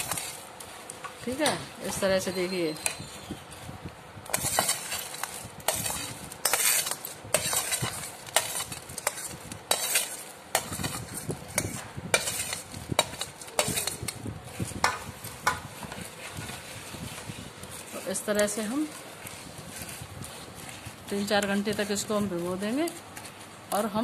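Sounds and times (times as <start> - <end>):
metal spoon scraping pot: 4.3 - 23.0.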